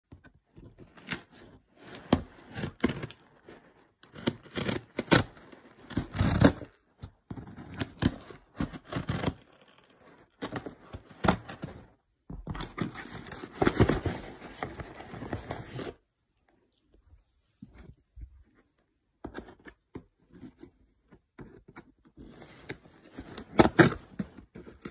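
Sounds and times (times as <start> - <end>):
cardboard scraping and rustling: 0.1 - 16.0.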